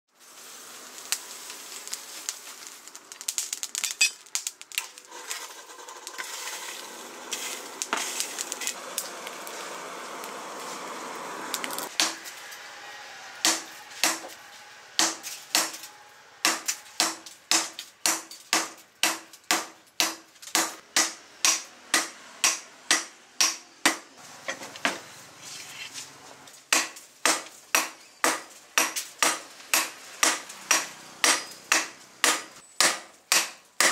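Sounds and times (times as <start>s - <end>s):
coals crackling in forge fire: 0.1s - 23.5s, 24.2s - 33.9s
hammer striking steel on anvil: 13.4s - 14.4s, 15.0s - 24.0s, 26.7s - 33.9s.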